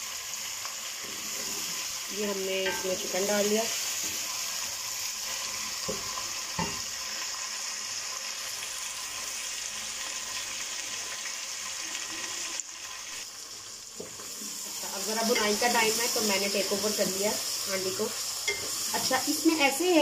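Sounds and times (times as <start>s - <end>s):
chicken sizzling in oil: 0.0s - 20.0s
wooden spoon knocking pot: 2.6s - 3.1s.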